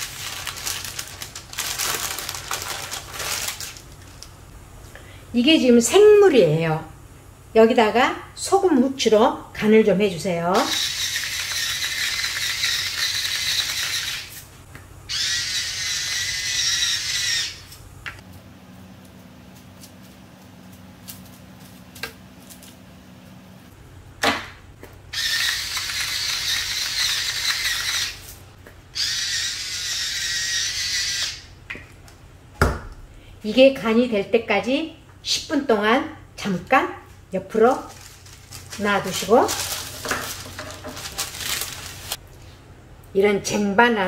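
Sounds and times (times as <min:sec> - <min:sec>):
electric grinders whirring: 0:10.6 - 0:14.4, 0:15.1 - 0:17.7, 0:25.1 - 0:28.3, 0:29.0 - 0:31.4.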